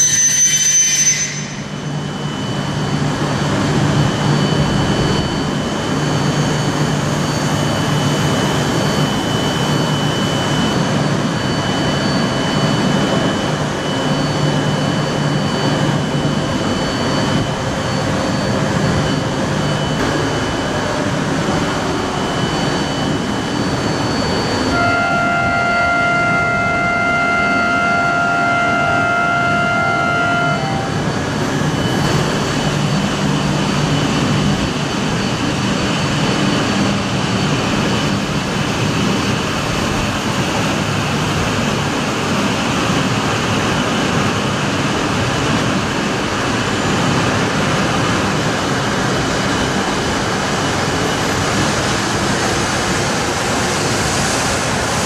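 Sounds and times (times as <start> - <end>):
electronic multi-note tone: 0.0 - 38.5
train rushing past: 0.0 - 55.0.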